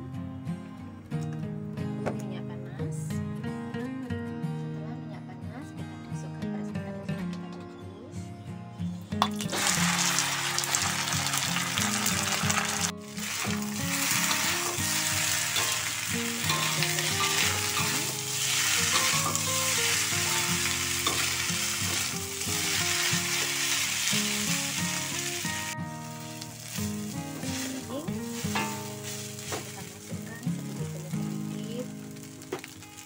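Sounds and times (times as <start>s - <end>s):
background music: 0.0s - 33.0s
rice sizzling in a wok: 9.2s - 33.0s
metal spatula scraping wok: 9.3s - 30.7s.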